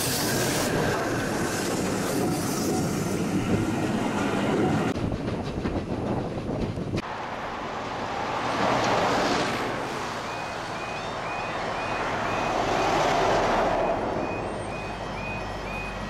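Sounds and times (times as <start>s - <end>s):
vehicles driving past: 7.0s - 16.0s
level crossing alarm beeping: 10.2s - 16.0s.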